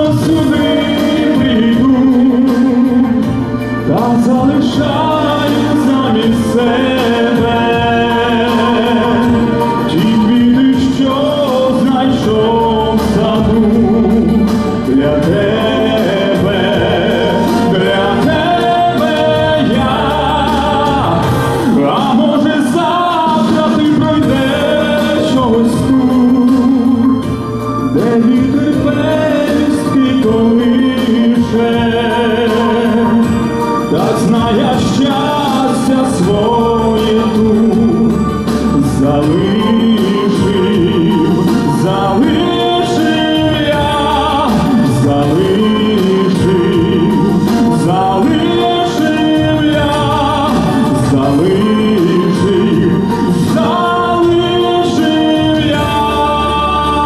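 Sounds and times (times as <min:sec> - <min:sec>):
instrumental music with bass line: 0:00.0 - 0:57.0
man singing into a microphone: 0:00.0 - 0:57.0.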